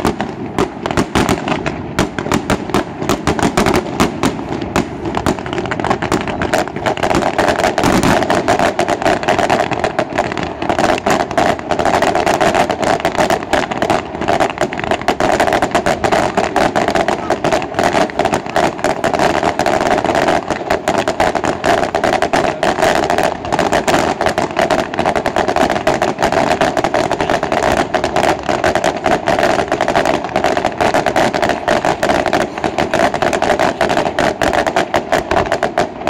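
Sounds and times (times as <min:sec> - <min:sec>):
fireworks bangs and crackling: 0:00.0 - 0:36.0.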